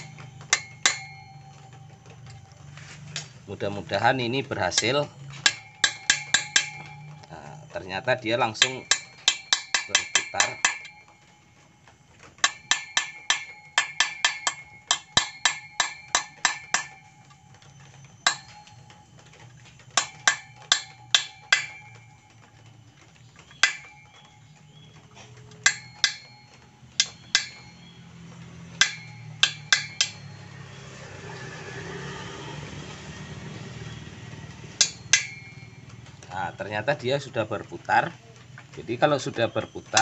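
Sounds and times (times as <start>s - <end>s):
small hammer tapping metal: 0.0s - 3.3s, 4.5s - 11.4s, 12.2s - 30.9s, 34.7s - 36.1s, 38.6s - 40.0s.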